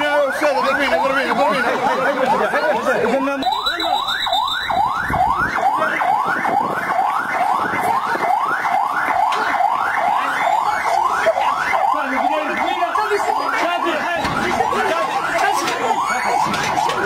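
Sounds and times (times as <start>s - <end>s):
siren in quick rising sweeps: 3.4s - 12.3s.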